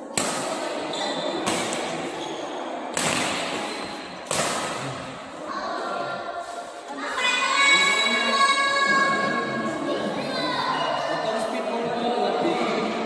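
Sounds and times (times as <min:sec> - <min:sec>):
rackets hitting shuttlecock: 0:00.0 - 0:05.0.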